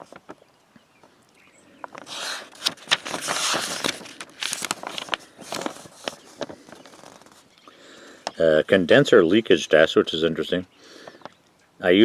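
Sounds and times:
paper pages rustling: 0.0 - 0.4, 1.8 - 7.6.

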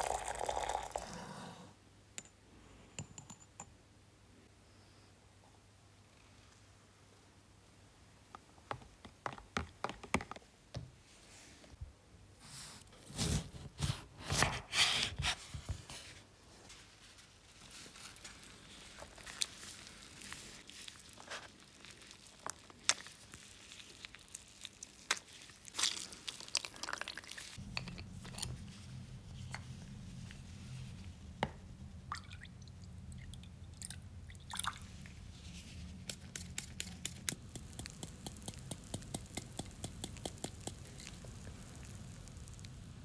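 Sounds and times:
juice dripping into bucket: 19.0 - 27.6, 36.3 - 43.0
liquid fizzing with small pops: 36.1 - 42.8.

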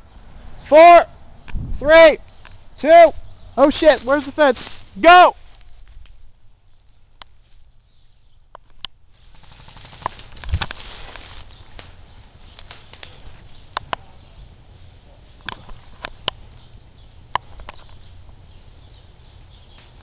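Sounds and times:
footsteps running through dry leaves: 9.2 - 11.8.

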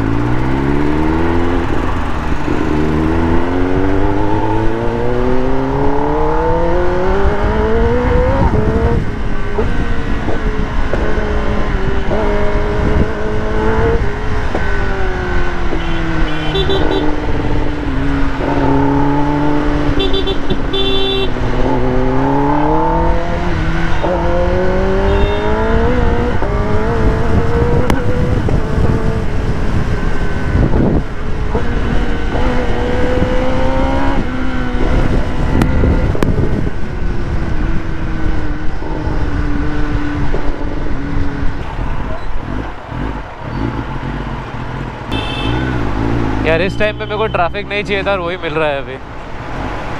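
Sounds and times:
motorcycle engine revving: 0.0 - 49.9
wind rush over microphone: 5.9 - 14.4, 22.5 - 43.2.

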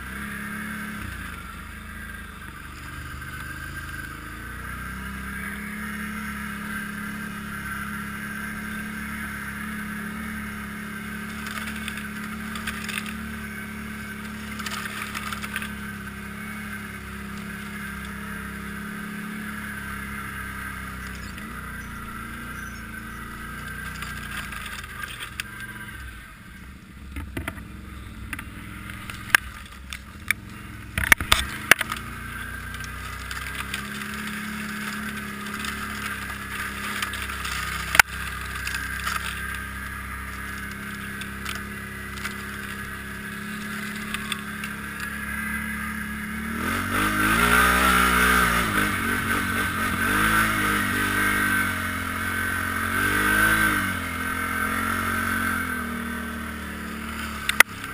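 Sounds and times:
atv engine running: 0.0 - 57.9.

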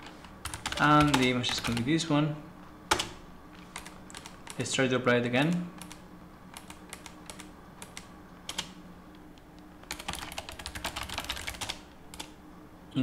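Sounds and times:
typing on computer keyboard: 0.4 - 1.9, 2.9 - 4.6, 5.8 - 8.8, 9.8 - 12.4.

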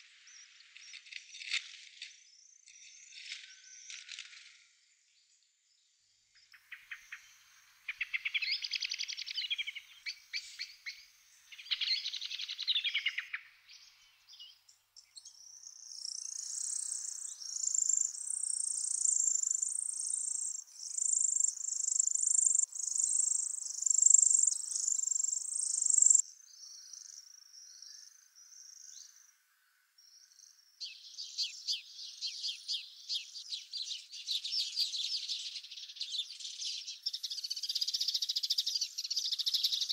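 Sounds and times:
nestlings high repeated calls: 6.6 - 14.0, 15.2 - 26.2.

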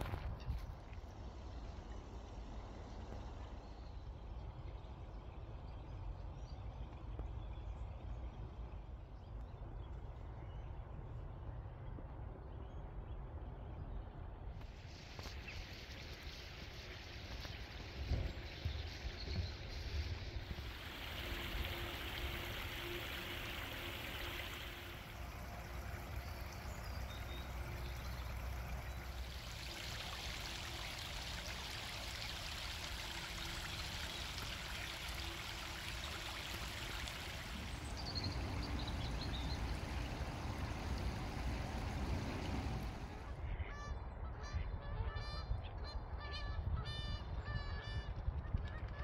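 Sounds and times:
running water rushing: 14.6 - 43.4.

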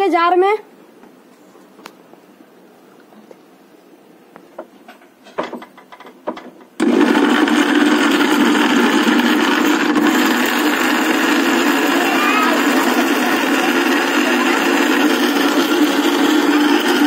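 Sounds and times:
mixer grinder running: 6.8 - 17.0.

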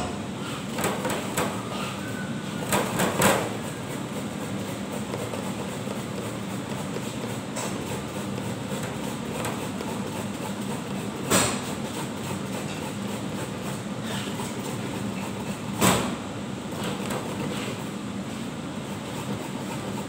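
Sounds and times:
metal grater scraping vegetable: 3.5 - 15.7, 18.8 - 20.0.

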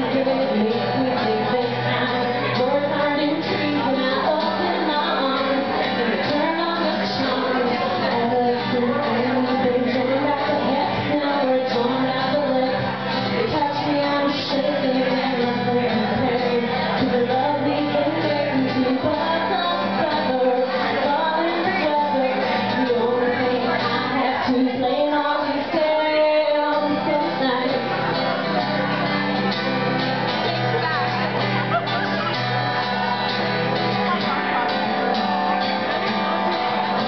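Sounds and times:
woman singing: 0.0 - 29.2
acoustic guitar: 0.0 - 37.0.

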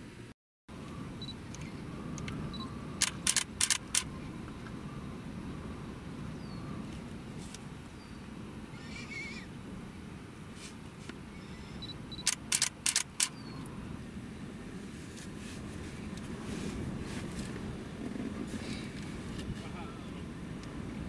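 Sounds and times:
low wind rumble: 0.0 - 21.0
faint chirp: 2.5 - 2.8, 11.3 - 12.2
camera shutter firing: 3.0 - 4.1, 12.2 - 13.4.

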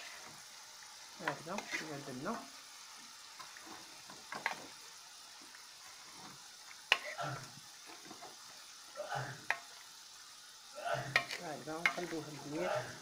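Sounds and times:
meat and onion sizzling in a pot: 0.0 - 13.0
wooden spoon scraping a pot: 1.2 - 2.5, 3.4 - 4.8, 5.4 - 8.6, 10.9 - 13.0.

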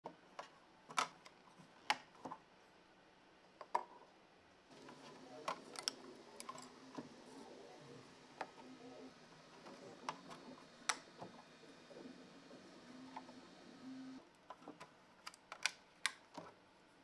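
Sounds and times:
print sheet clicks and taps: 9.6 - 11.4.

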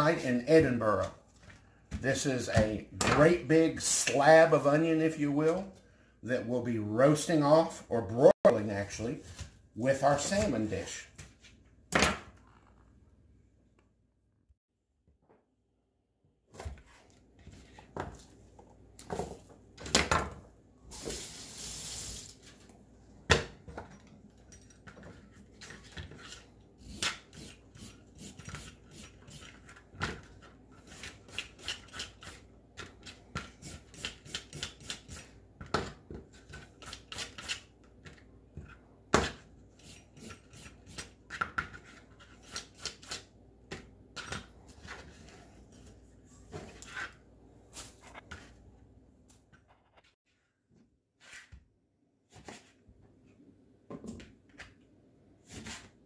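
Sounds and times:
knife cutting onion: 26.1 - 35.4, 36.4 - 37.7, 39.2 - 43.3.

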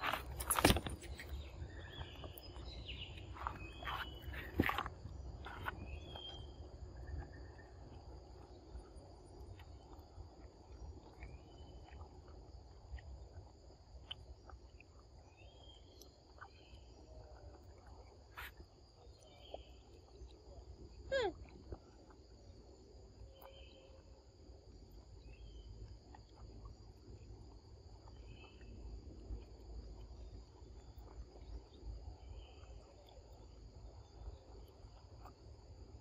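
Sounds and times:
insects droning: 0.0 - 36.0.

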